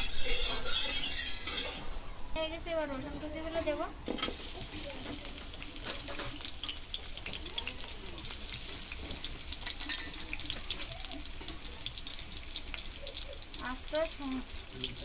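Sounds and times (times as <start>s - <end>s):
garlic sizzling in hot oil: 0.0s - 1.9s, 4.1s - 15.0s
spatula stirring: 0.0s - 2.0s, 4.2s - 15.0s.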